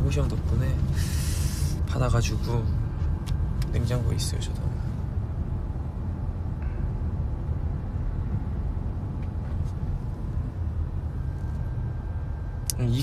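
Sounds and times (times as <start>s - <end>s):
car rumbling in motion: 0.0s - 13.0s.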